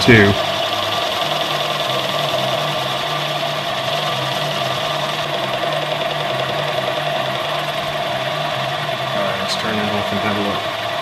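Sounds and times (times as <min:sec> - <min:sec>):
metal lathe whining and humming: 0:00.0 - 0:11.0.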